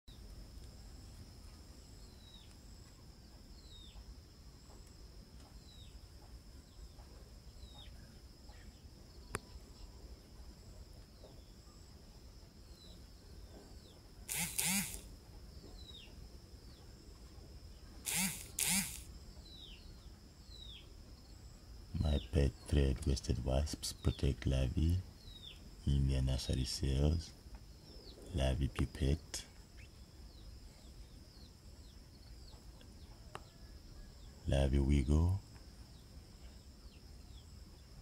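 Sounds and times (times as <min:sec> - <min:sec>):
high insect drone: 0:00.1 - 0:38.0
descending bird peeps: 0:14.3 - 0:15.1, 0:18.0 - 0:19.0
loud rasping bursts: 0:14.3 - 0:15.1, 0:18.0 - 0:19.1.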